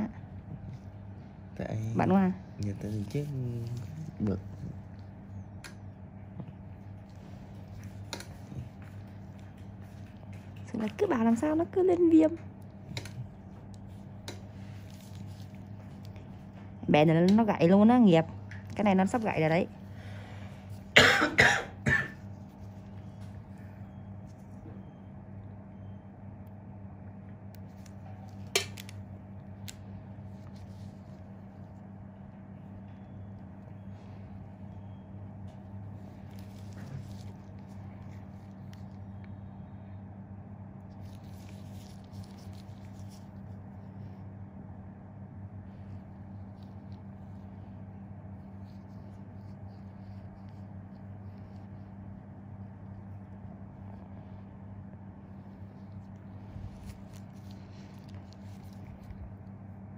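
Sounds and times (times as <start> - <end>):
low steady hum: 0.0 - 59.9
gloved fingers rustling on skin: 12.6 - 16.8, 22.2 - 25.0, 27.5 - 39.2, 40.9 - 44.2, 45.7 - 59.9.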